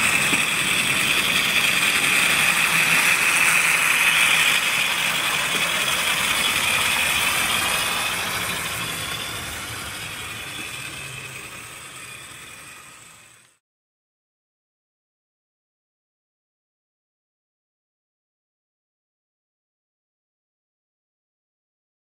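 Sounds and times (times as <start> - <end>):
model train motor whirring: 0.0 - 13.6.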